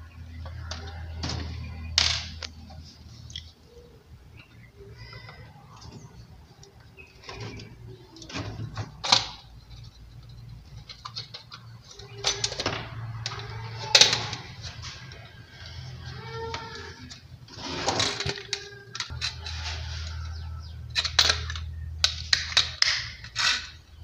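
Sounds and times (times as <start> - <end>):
loud plastic snaps: 21.0 - 23.8.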